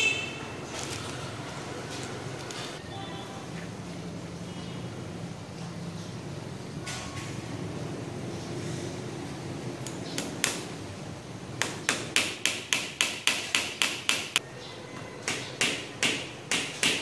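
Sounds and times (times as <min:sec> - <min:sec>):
hammer tapping nail: 0:11.6 - 0:14.4.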